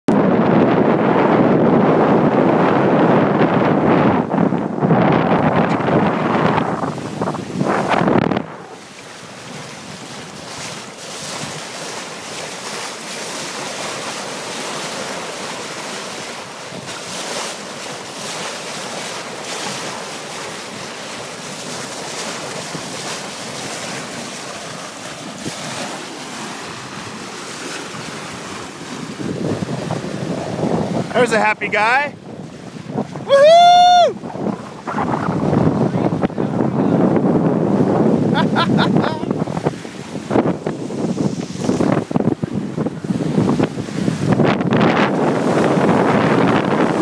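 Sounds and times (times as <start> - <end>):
water rushing along boat hull: 0.1 - 47.0
wind buffeting microphone: 0.1 - 47.0.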